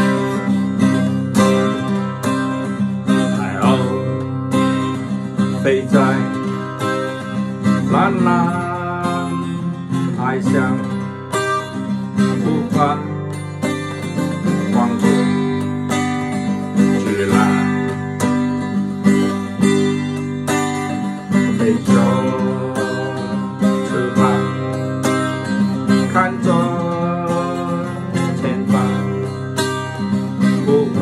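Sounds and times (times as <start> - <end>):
man singing: 0.0 - 20.2, 20.8 - 31.0
acoustic guitar strumming: 0.0 - 31.0.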